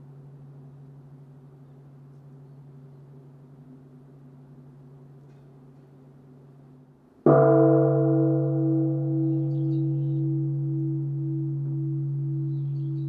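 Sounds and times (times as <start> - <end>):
large temple bell ringing: 7.2 - 13.0.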